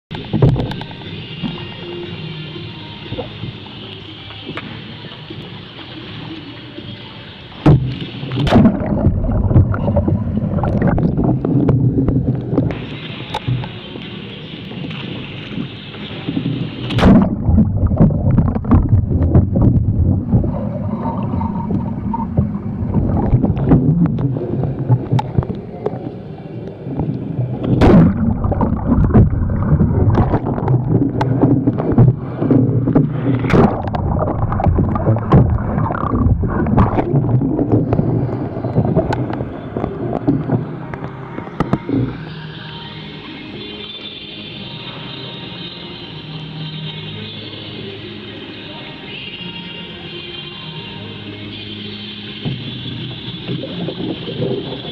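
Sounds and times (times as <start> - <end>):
water splashing and gurgling: 0.1 - 43.6, 52.3 - 54.9
sharp splashes: 7.6 - 13.5, 14.9 - 25.8, 27.4 - 42.3.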